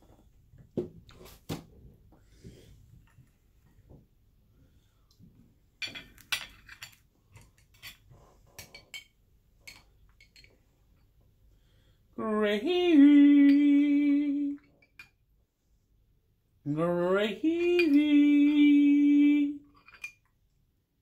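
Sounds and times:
metal spoon clinking on dishes: 5.8s - 10.6s, 19.7s - 20.3s.

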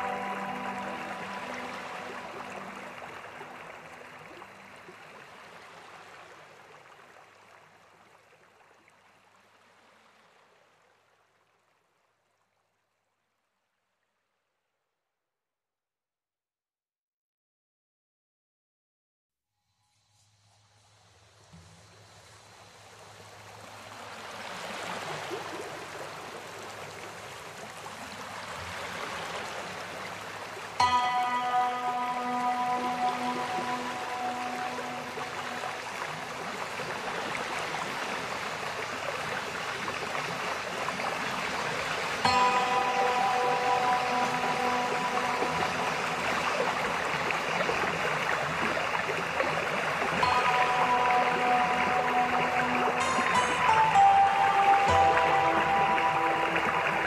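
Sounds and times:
soft held music notes: 0.0s - 5.2s
stream water running: 0.0s - 14.1s, 20.2s - 57.0s.

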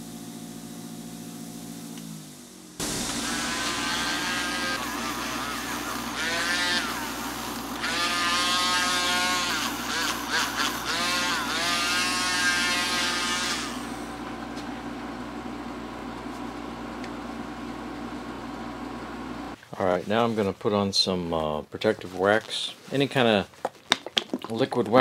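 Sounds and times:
grinder motor whine: 0.0s - 19.6s.

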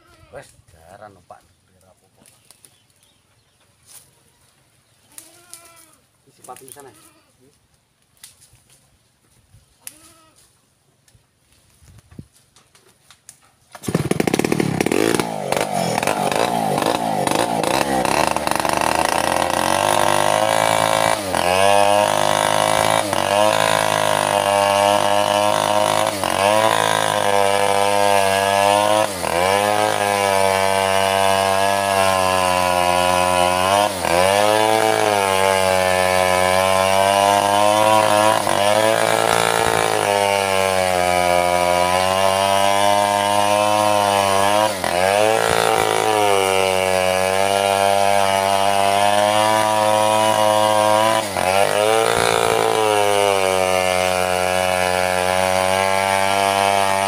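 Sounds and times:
chainsaw cutting through log: 13.7s - 57.0s.

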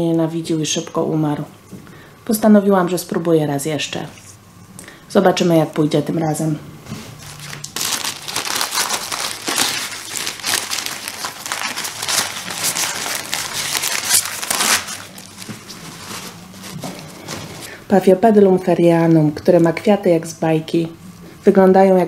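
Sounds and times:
packing paper crinkling: 7.2s - 17.7s.

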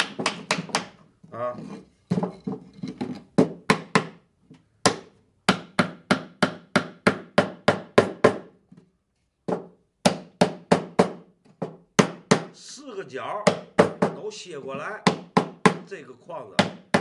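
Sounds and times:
hammer tapping wooden frame: 0.0s - 1.0s, 3.4s - 8.8s, 9.5s - 12.6s, 13.4s - 15.9s, 16.5s - 17.0s.

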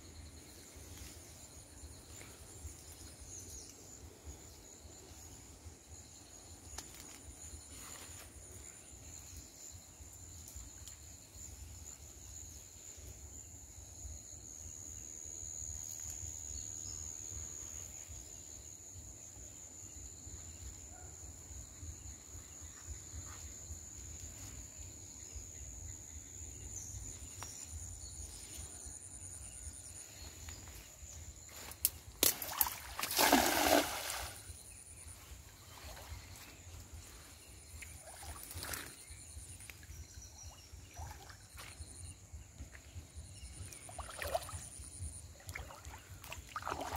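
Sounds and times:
insects buzzing: 0.0s - 46.9s
pond water splashing: 31.7s - 34.6s, 35.4s - 36.4s, 37.8s - 39.0s, 40.8s - 41.8s, 43.7s - 46.9s.

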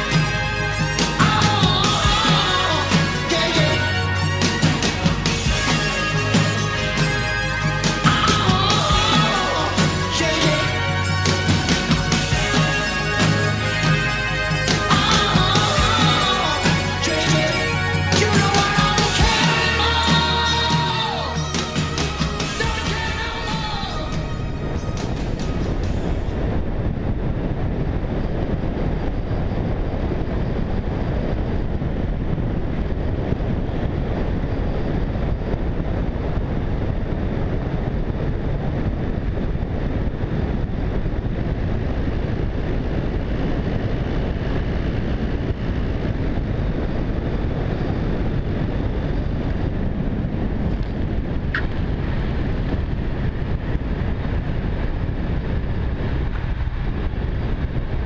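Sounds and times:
light aircraft engine drone: 0.0s - 58.0s.

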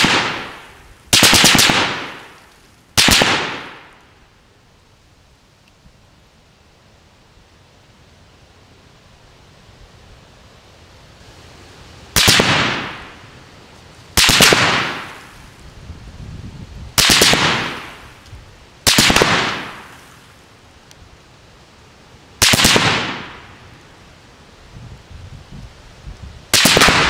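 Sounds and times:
automatic rifle fire bursts: 0.0s - 2.3s, 3.0s - 3.9s, 12.2s - 13.1s, 14.2s - 15.2s, 17.0s - 17.9s, 18.9s - 19.8s, 22.4s - 23.4s, 26.5s - 27.0s.

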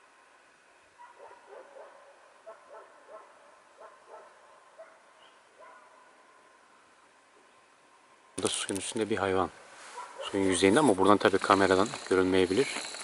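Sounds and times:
dog barking and yelping: 1.0s - 6.0s, 9.9s - 10.9s.

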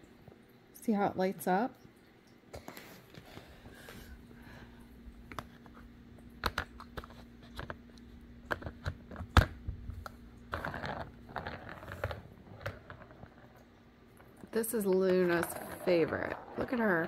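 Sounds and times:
plastic ball clicking around a track: 8.5s - 17.0s.

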